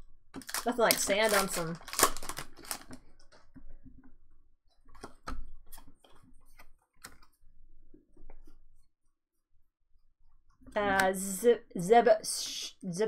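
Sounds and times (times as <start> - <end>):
cards clicking and snapping: 0.4 - 3.4, 5.0 - 7.3.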